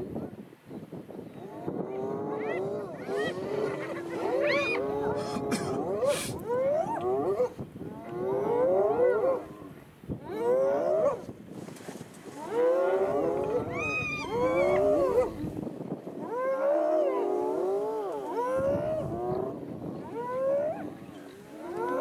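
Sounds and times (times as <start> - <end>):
hyenas squealing: 2.3 - 7.0, 13.5 - 15.3.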